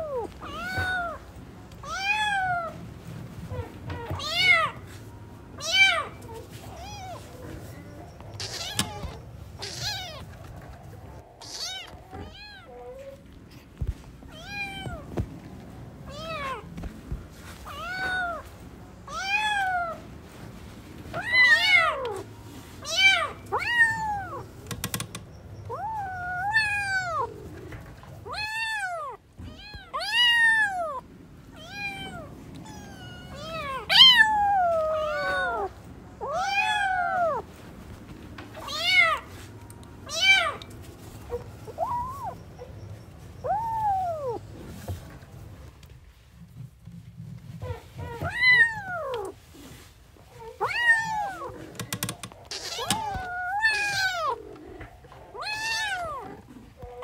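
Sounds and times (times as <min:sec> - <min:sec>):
kittens meowing: 0:05.6 - 0:10.4, 0:11.1 - 0:13.2, 0:31.6 - 0:37.4, 0:41.3 - 0:44.4, 0:47.6 - 0:49.4, 0:50.2 - 0:57.0.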